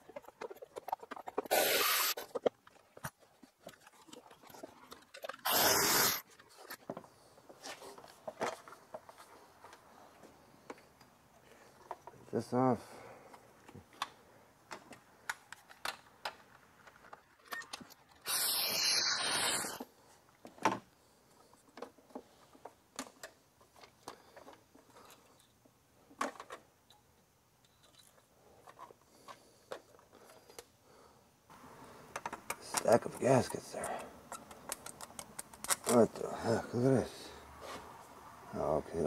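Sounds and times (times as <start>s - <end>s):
tools and metal parts clicking: 27.6s - 28.9s, 32.2s - 36.0s.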